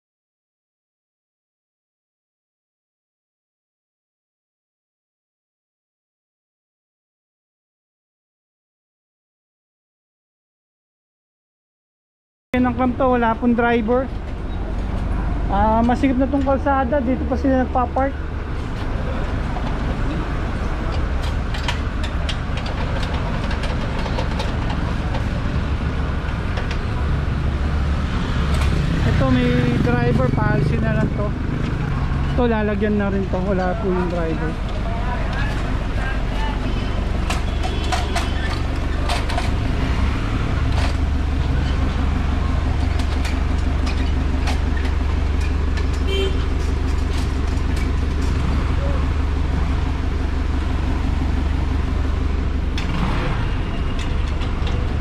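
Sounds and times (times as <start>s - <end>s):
engine idling: 12.6s - 55.0s
street traffic rumble: 12.6s - 55.0s
metallic clicks and clanks: 20.9s - 25.4s, 37.2s - 39.7s
metal clanks of wheel clamp: 37.2s - 39.6s.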